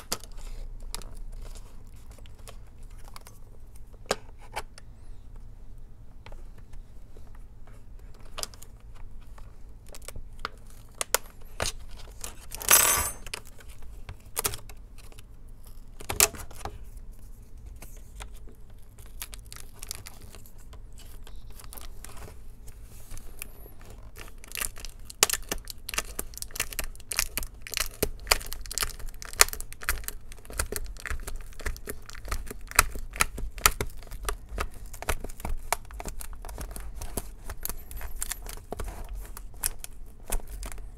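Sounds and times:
tape tearing crackle: 0:24.2 - 0:40.8.

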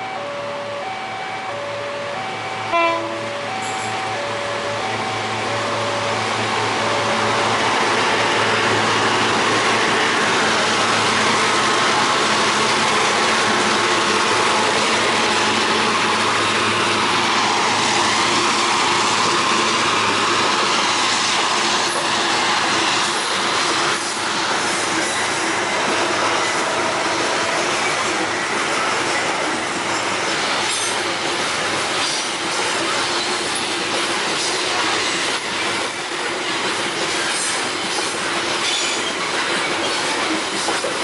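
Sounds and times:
train wheels rushing on rails: 0:00.9 - 0:41.0.

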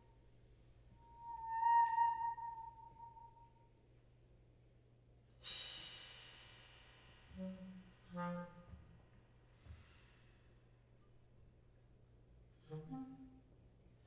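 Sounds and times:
low clarinet notes: 0:01.0 - 0:03.5, 0:07.4 - 0:08.9, 0:12.6 - 0:13.6.

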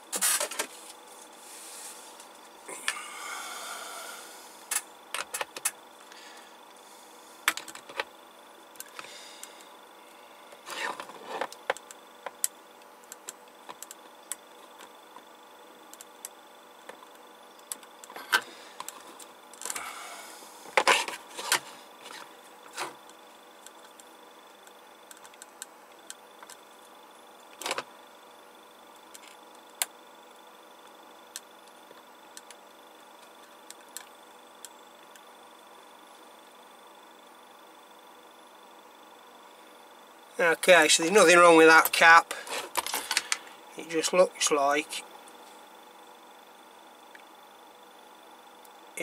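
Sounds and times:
test probes clicking and tapping: 0:11.5 - 0:15.3, 0:23.0 - 0:27.9.

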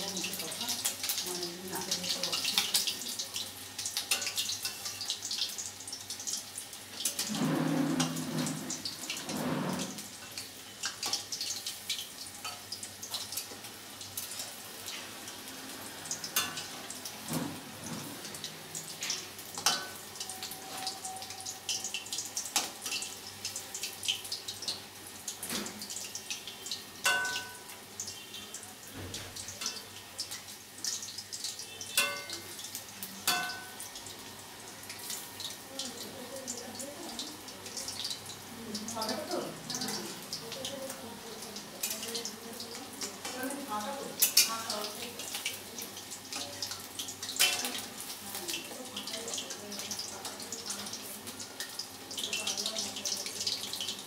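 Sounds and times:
chicken deep-frying in oil: 0:00.0 - 0:54.0
metal spoon tapping wok: 0:19.6 - 0:20.1, 0:27.0 - 0:27.8, 0:31.9 - 0:32.5, 0:33.2 - 0:33.8.

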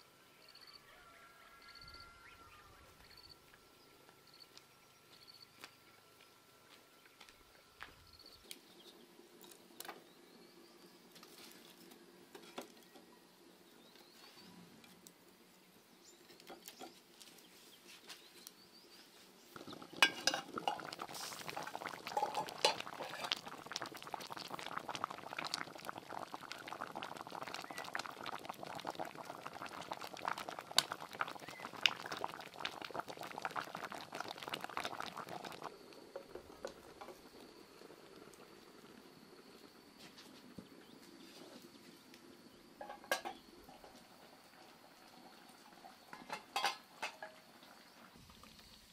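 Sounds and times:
water boiling and bubbling: 0:08.2 - 0:17.0, 0:19.1 - 0:48.9.

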